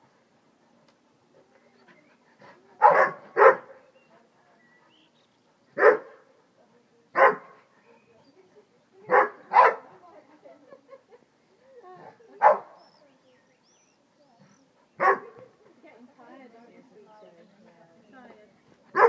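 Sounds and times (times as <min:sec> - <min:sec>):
dog barking: 0:02.8 - 0:03.8, 0:05.8 - 0:06.2, 0:07.2 - 0:07.6, 0:09.1 - 0:09.8, 0:12.4 - 0:12.7, 0:15.0 - 0:15.4.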